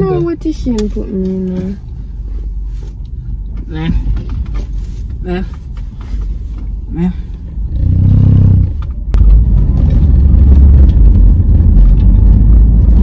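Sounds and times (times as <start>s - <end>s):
low road rumble: 0.0s - 13.0s
car engine revving: 6.4s - 13.0s.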